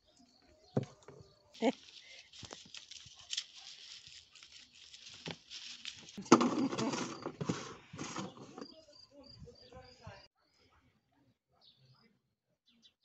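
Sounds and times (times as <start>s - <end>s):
dry leaves and skins rustling: 1.6s - 8.6s.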